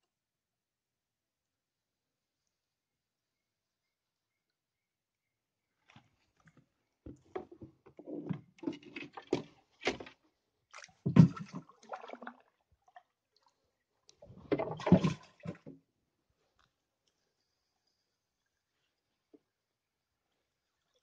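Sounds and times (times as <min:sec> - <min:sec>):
water splashing and sloshing: 0:05.8 - 0:17.4.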